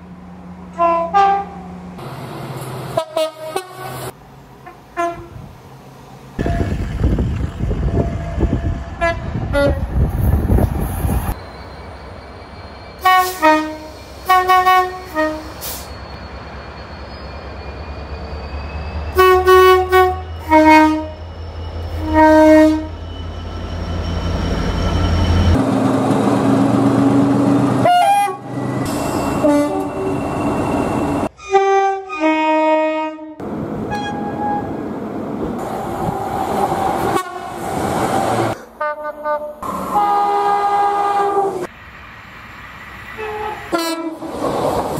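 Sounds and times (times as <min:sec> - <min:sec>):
train horn blasts: 0:00.7 - 0:01.7, 0:03.0 - 0:05.5, 0:06.4 - 0:06.8, 0:08.0 - 0:09.8, 0:13.0 - 0:15.9, 0:19.1 - 0:21.2, 0:21.9 - 0:23.0, 0:27.8 - 0:28.5, 0:29.3 - 0:30.2, 0:31.4 - 0:34.7, 0:37.0 - 0:37.6, 0:38.8 - 0:41.7, 0:43.2 - 0:44.2.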